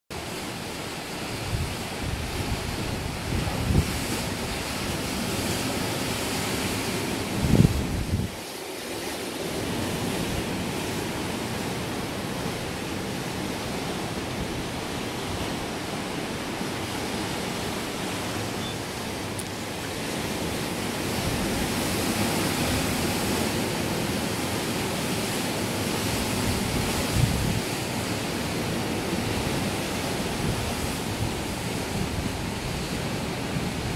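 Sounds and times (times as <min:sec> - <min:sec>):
choppy water: 0:00.1 - 0:33.9
wind buffeting microphone: 0:01.3 - 0:08.5, 0:26.0 - 0:33.9.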